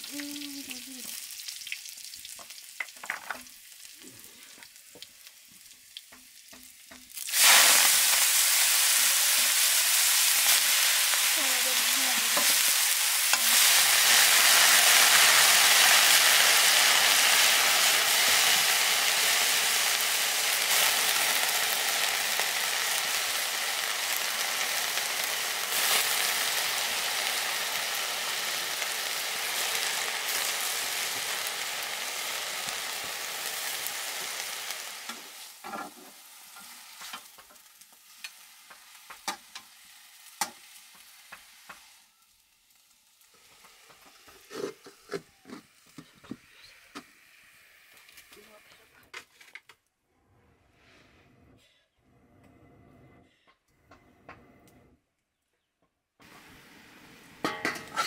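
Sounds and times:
food sizzling in hot oil: 0.0 - 48.4, 56.2 - 58.0.

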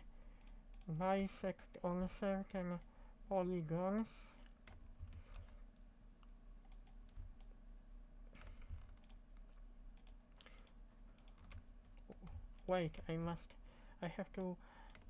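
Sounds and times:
low steady hum: 0.0 - 15.0
keyboard and mouse clicks: 4.4 - 7.5, 8.3 - 13.3, 14.4 - 15.0.

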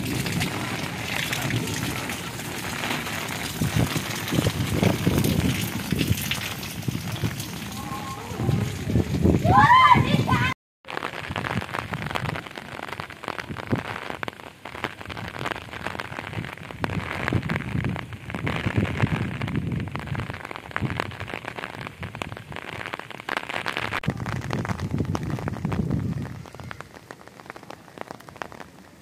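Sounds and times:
low rumbling: 0.0 - 10.5
heavy rain falling: 0.0 - 29.0.

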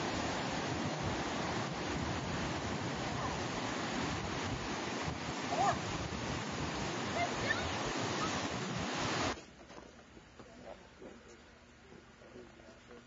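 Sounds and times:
ocean waves breaking on beach: 0.0 - 9.4.

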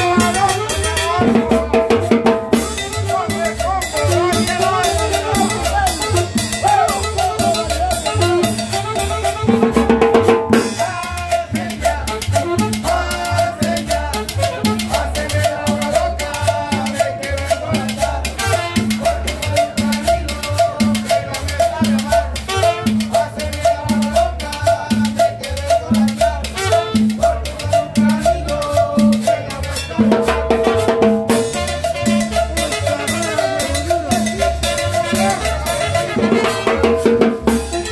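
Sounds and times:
drum kit and cymbals: 0.0 - 12.8, 29.8 - 37.9
saxophone: 0.0 - 23.9, 26.2 - 29.6, 31.3 - 37.9
latin dance band playing: 0.0 - 37.9.

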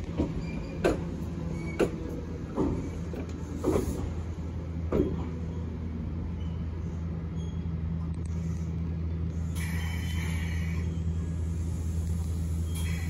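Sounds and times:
train humming: 0.0 - 13.0
squealing hiss: 12.5 - 13.0.

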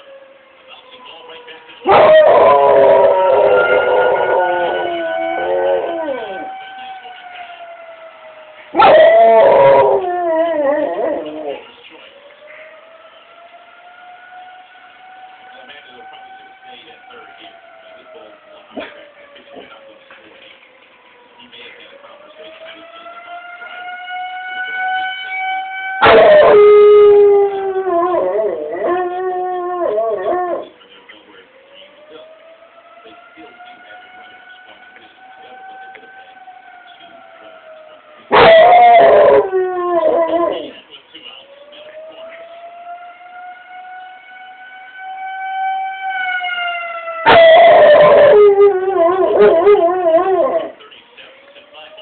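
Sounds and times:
fire siren: 0.0 - 52.0
dog howling: 1.8 - 6.6, 8.7 - 11.7, 26.0 - 30.8, 38.3 - 40.8, 47.0 - 50.8.

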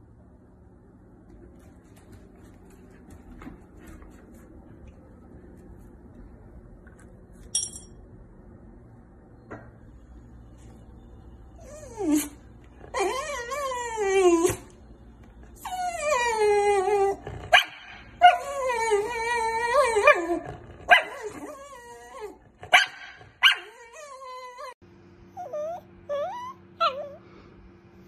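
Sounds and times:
dog whining and howling: 11.5 - 14.9, 15.5 - 22.6, 23.4 - 27.2
small dog high whines: 25.4 - 27.2.

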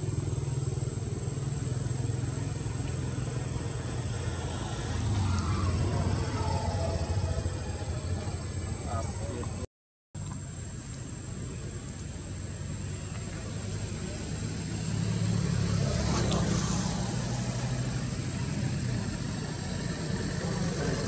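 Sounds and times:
vehicle engine drone: 0.0 - 21.0.

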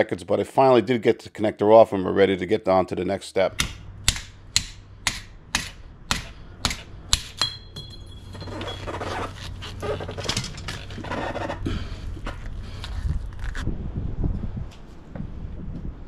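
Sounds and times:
sharp metallic taps: 3.5 - 8.2
metal scraping and rattling: 7.4 - 12.5.

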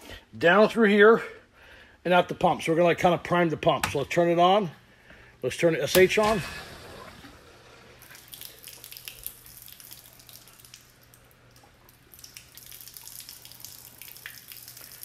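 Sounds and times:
faint steady hum: 0.0 - 15.0
water splashing on concrete: 6.2 - 11.2, 11.9 - 15.0
water dripping: 7.2 - 15.0.

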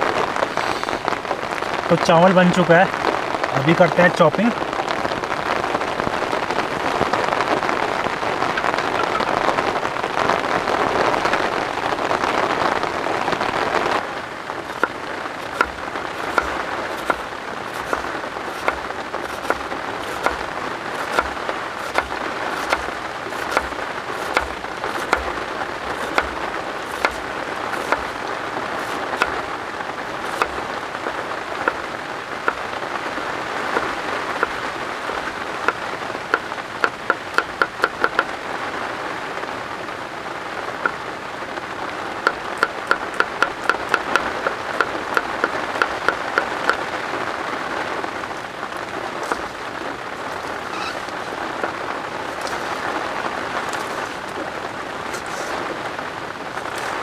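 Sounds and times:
heavy rain falling: 0.0 - 57.0
knife chopping on cutting board: 14.7 - 20.4, 21.0 - 28.2, 28.8 - 29.4, 30.2 - 30.6, 36.8 - 38.2, 49.2 - 49.6, 52.3 - 52.8, 55.1 - 55.5.

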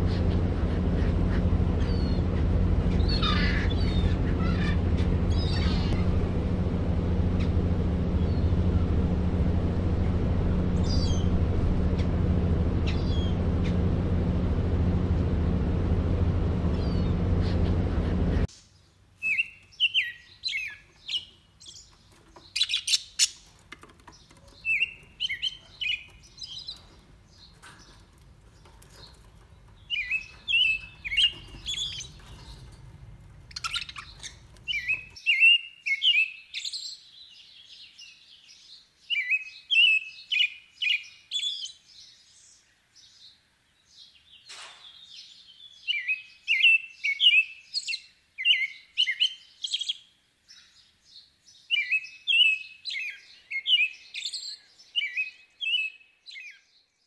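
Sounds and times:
budgerigars chirping and warbling: 0.0 - 6.0, 12.8 - 13.8, 19.3 - 36.3.

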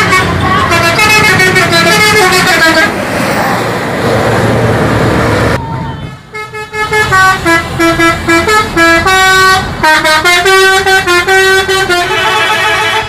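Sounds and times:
multi-tone bus horn melody: 0.0 - 3.0, 5.6 - 13.0.

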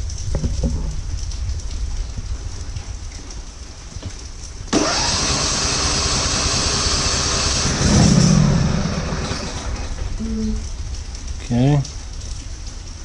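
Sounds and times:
electric starter cranking engine: 4.7 - 9.9.

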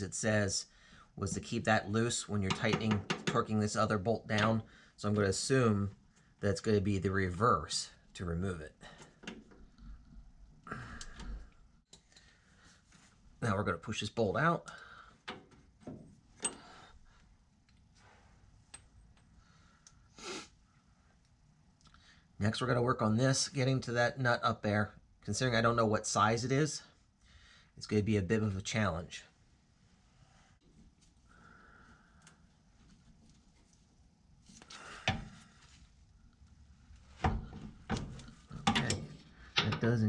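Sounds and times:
faint metal clicks and knocks: 9.0 - 10.2, 37.2 - 40.0.

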